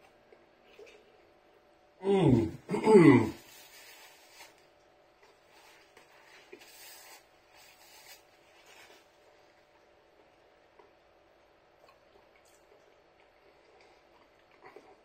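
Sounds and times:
paper napkin rustling: 5.5 - 9.1.

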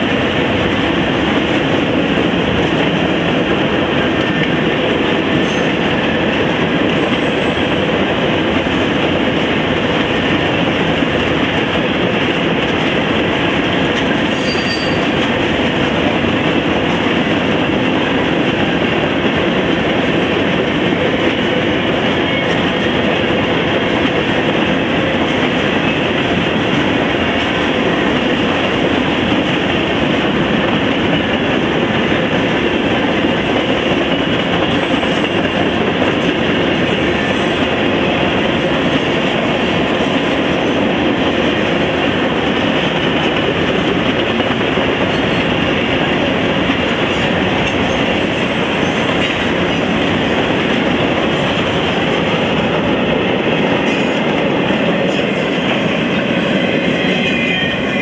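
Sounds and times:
freight train wheels on rail: 0.0 - 58.0
high wheel squeals: 14.3 - 15.1.

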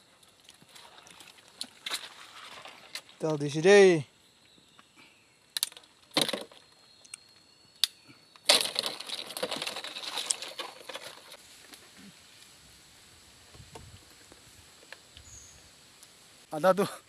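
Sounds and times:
rustling and scraping leaves: 0.0 - 4.3, 8.2 - 17.0
knocks and clicks of rocks: 5.6 - 6.7, 8.4 - 11.4.

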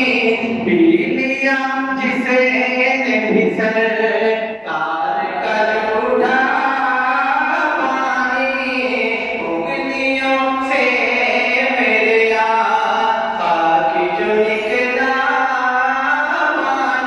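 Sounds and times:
man singing unaccompanied: 0.0 - 17.0.

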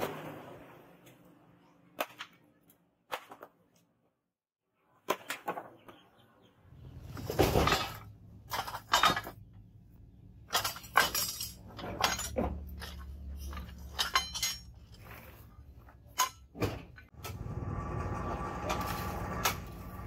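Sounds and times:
scrap metal clanking: 10.5 - 20.0.

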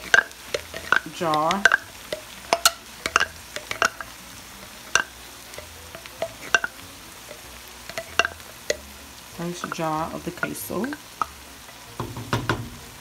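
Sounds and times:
meat sizzling in pan: 0.0 - 13.0
wooden spoon knocking on jar: 6.0 - 6.8.

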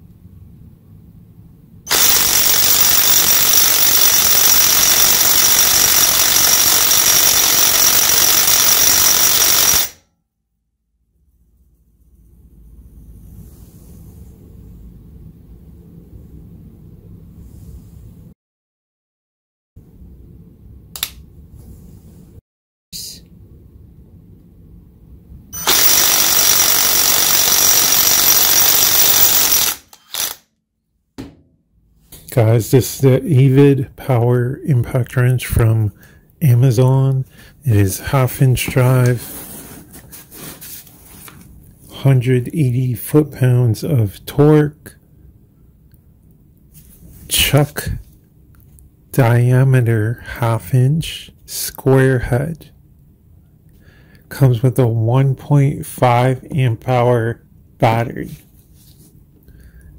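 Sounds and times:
impact wrench hammering: 1.9 - 10.0, 25.6 - 30.4, 31.2 - 31.5.

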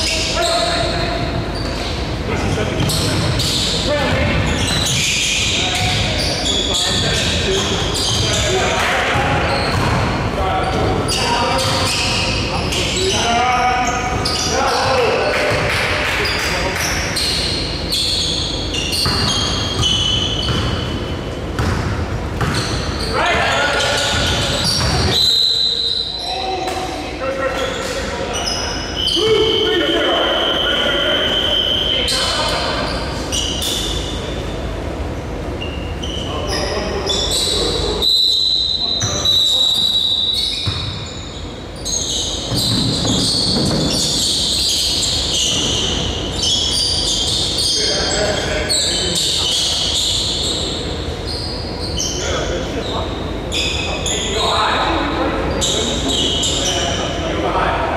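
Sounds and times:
sneakers squeaking on court: 0.0 - 26.4, 31.2 - 37.9, 38.6 - 54.5
basketball bouncing: 9.1 - 10.9, 19.0 - 21.0, 21.6 - 22.9, 24.1 - 25.2, 40.6 - 40.9.

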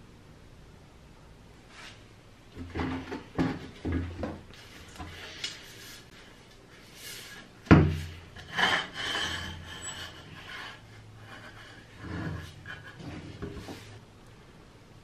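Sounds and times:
metal rubbing and scraping: 6.9 - 14.0.

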